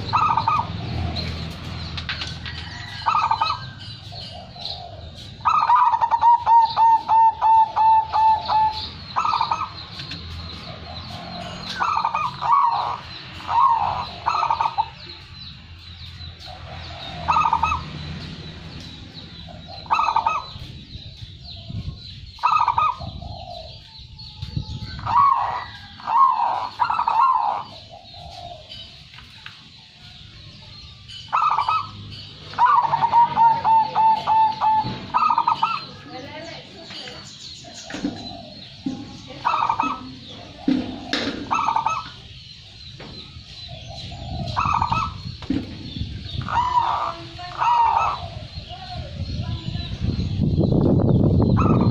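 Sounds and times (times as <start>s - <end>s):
dove cooing: 0.0s - 1.4s, 2.7s - 15.0s, 16.8s - 18.0s, 19.4s - 20.6s, 22.3s - 23.8s, 25.0s - 29.0s, 31.3s - 36.0s, 39.4s - 42.4s, 43.7s - 45.3s, 46.2s - 49.2s, 51.5s - 51.9s.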